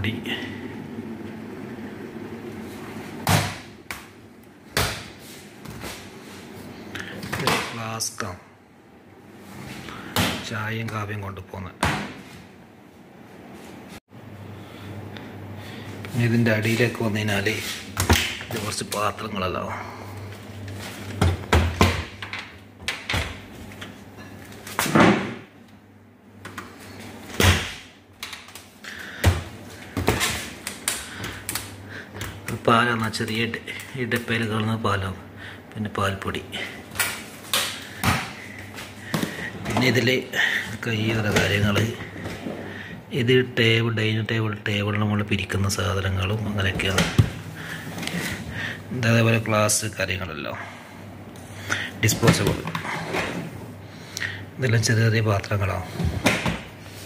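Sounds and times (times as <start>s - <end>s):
cabinet doors opening and shutting: 21.2s - 23.9s, 24.7s - 25.5s.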